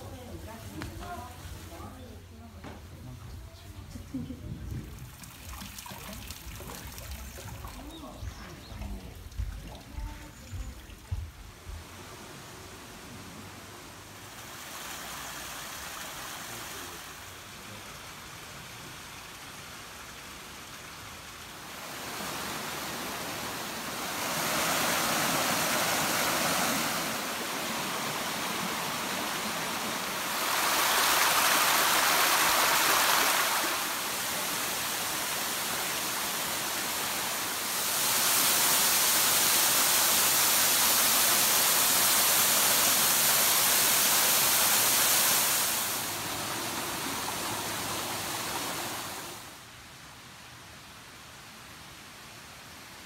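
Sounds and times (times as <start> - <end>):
small waterfall pouring into pool: 4.7 - 49.8
mountain stream rushing: 11.7 - 53.0.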